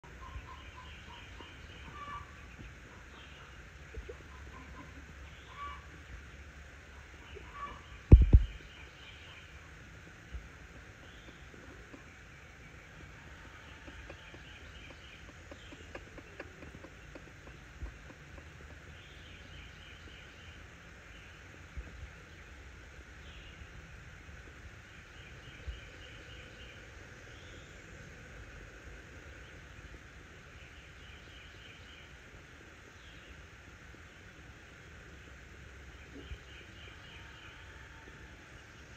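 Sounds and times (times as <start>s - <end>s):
chicks trilling peeps: 0.0s - 6.0s, 12.7s - 20.0s
low background hiss: 0.0s - 38.9s
dull low thumps: 8.1s - 8.6s.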